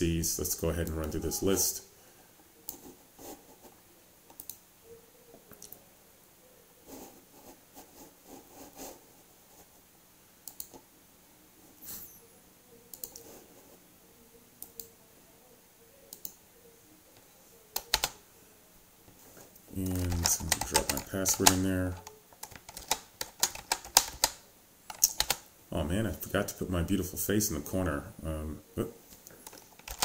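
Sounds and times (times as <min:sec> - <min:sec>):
mouse and keyboard clicks: 0:19.8 - 0:25.4.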